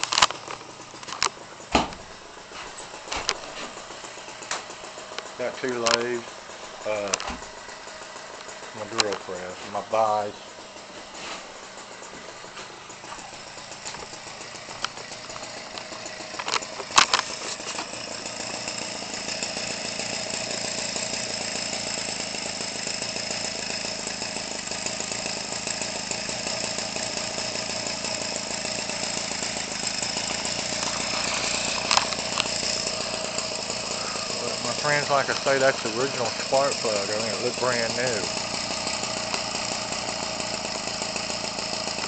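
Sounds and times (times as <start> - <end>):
sharp clicks: 0.0 - 2.0
two-stroke engine running: 0.0 - 42.0.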